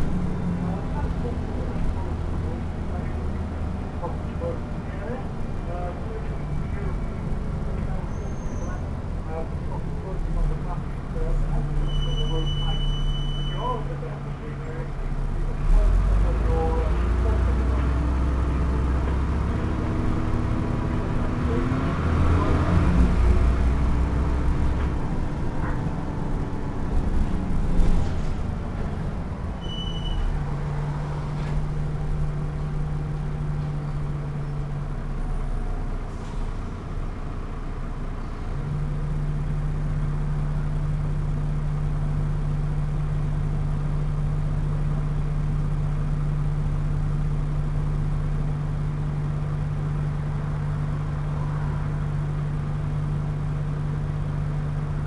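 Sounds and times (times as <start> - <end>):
bus engine droning: 0.0 - 55.0
brief high beep: 11.8 - 13.6, 29.6 - 30.3.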